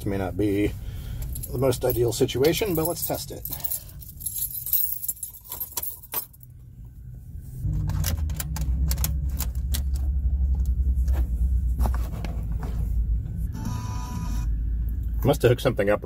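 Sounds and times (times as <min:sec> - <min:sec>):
keys jangling on key ring: 0:01.2 - 0:06.5
loud steady low hum: 0:06.4 - 0:15.5.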